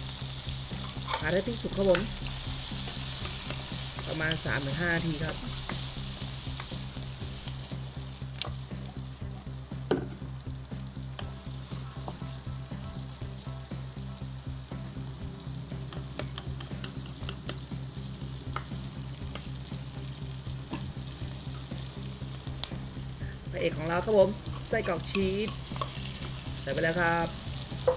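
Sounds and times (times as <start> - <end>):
steady low hum: 0.0 - 9.4
vegetables sizzling in hot oil: 0.0 - 27.9.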